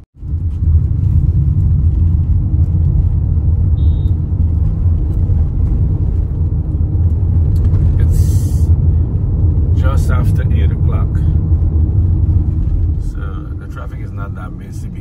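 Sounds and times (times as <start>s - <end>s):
road and wind noise inside car: 0.2s - 15.0s
brief high beep: 3.8s - 4.2s.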